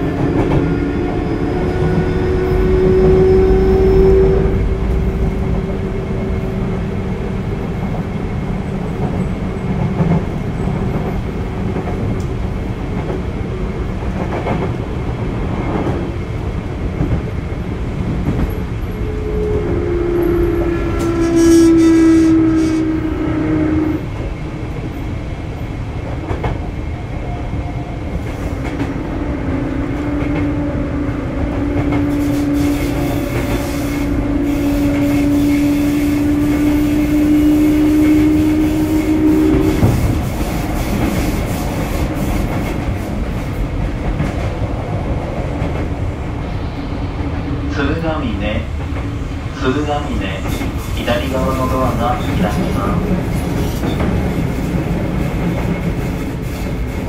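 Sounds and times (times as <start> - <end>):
train wheels rumbling on rail: 0.0 - 57.0
rail-joint clicks: 14.0 - 14.8, 26.2 - 27.4, 31.5 - 35.7, 50.4 - 57.0.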